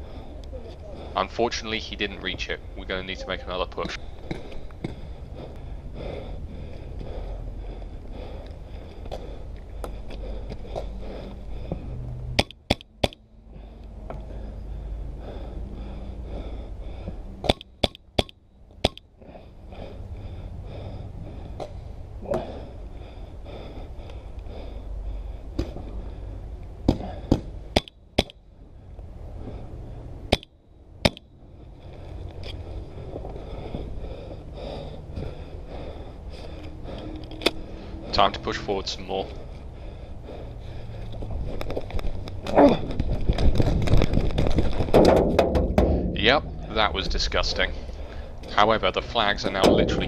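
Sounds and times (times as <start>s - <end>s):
paintball marker shots cracking: 12.4s - 13.2s, 17.4s - 19.0s, 26.9s - 28.4s.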